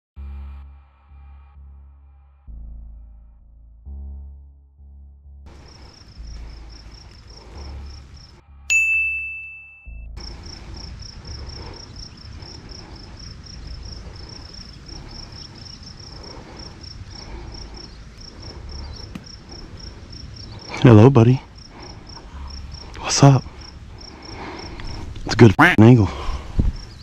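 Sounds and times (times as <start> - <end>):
insects chirping: 5.5 - 27.0
loud ding: 8.7 - 10.0.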